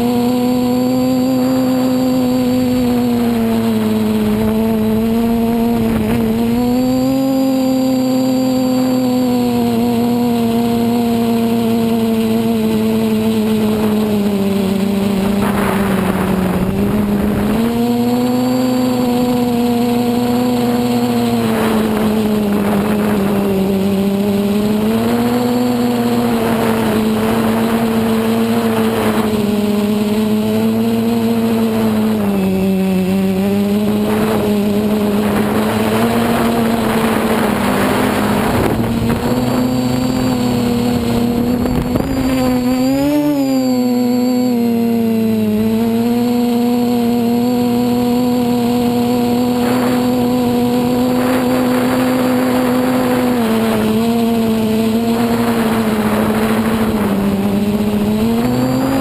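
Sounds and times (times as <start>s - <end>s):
drone motors humming: 0.0s - 59.0s
rushing air noise: 35.2s - 43.3s.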